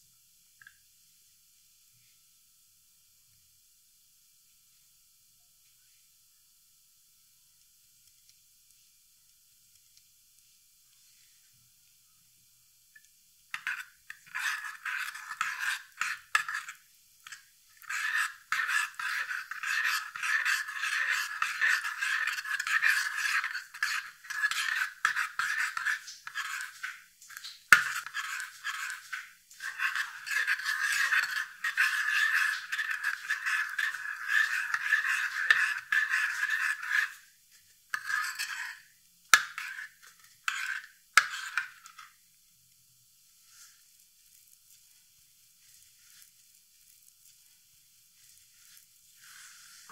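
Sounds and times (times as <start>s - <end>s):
metal spoon scraping ceramic bowl: 13.6s - 37.3s, 37.9s - 42.1s.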